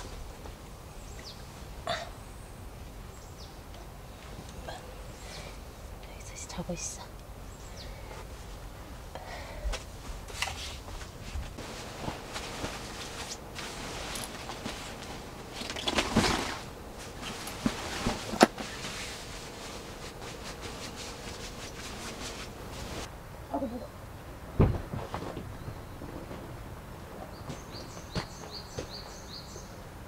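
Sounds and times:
fabric bedding rustling: 9.8 - 23.1.

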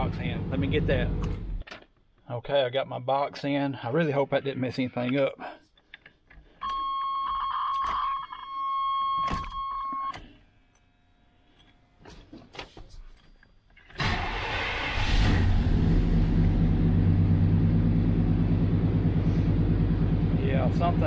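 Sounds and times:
truck engine starting and running: 0.0 - 1.6, 13.9 - 21.0.

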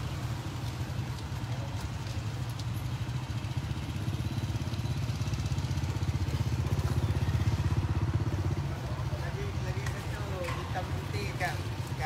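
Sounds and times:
small motorcycle engine idling: 0.2 - 12.0.

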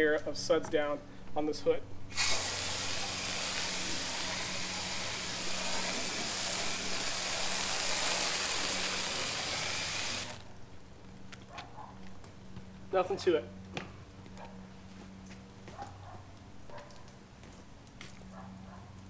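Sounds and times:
foam gun spraying hiss: 2.1 - 10.4.

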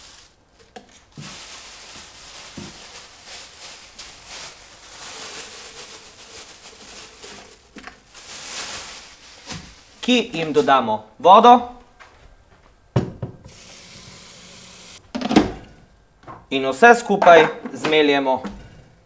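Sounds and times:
plastic bag crinkling: 0.0 - 10.7.

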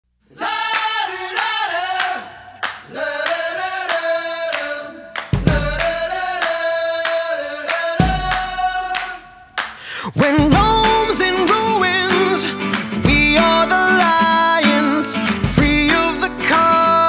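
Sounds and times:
group singing: 0.3 - 17.0
handclaps: 0.7 - 9.9, 10.5 - 16.8
bass drum: 5.4 - 6.1, 8.0 - 8.8, 10.4 - 11.6, 13.0 - 13.7, 15.4 - 16.2.

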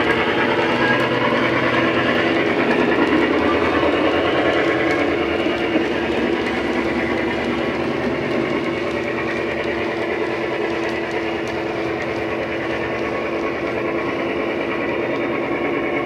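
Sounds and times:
diesel engine running: 0.0 - 16.0
model train running on track: 0.0 - 16.0.

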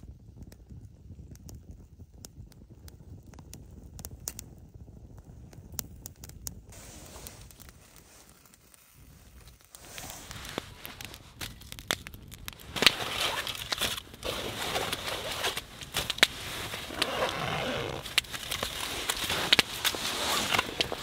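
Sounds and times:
aluminium foil crinkling: 7.0 - 21.0
fabric rustling: 12.6 - 21.0.

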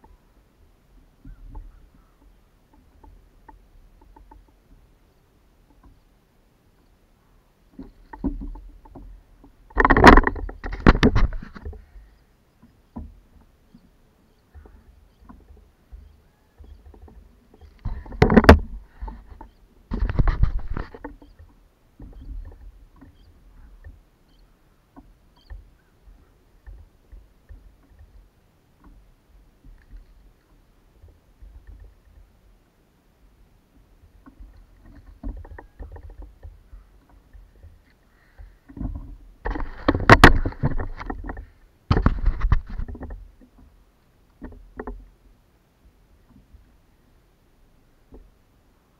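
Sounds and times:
noisy handling bursts: 7.7 - 11.8, 12.6 - 32.4, 34.0 - 43.7.

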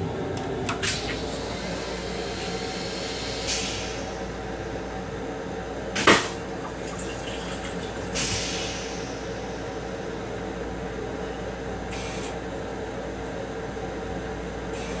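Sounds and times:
railcar hum: 0.0 - 15.0.

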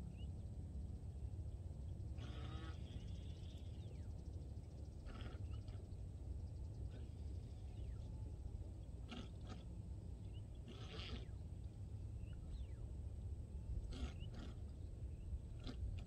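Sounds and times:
birds calling: 1.9 - 8.1, 13.8 - 15.8
steady low rumble: 2.8 - 16.0.

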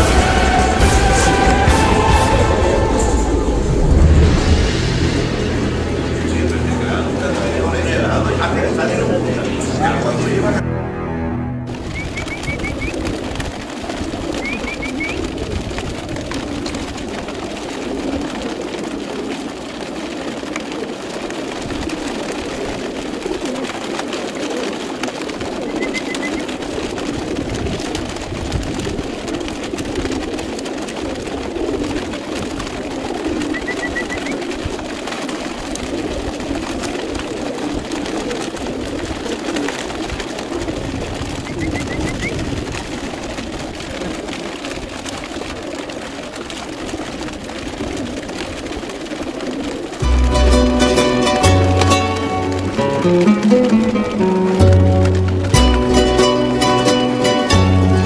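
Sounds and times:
pigeons cooing: 0.0 - 10.2, 11.7 - 58.0.

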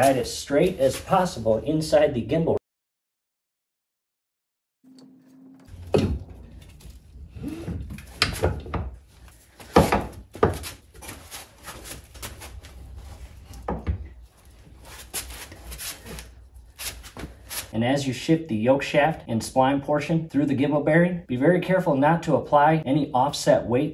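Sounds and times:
metal knocks and clunks: 5.6 - 10.7.

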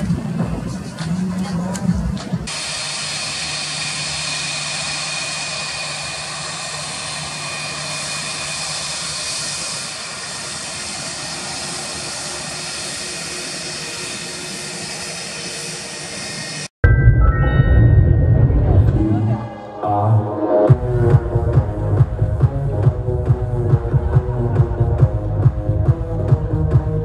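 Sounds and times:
jet engines taxiing: 0.0 - 16.7.

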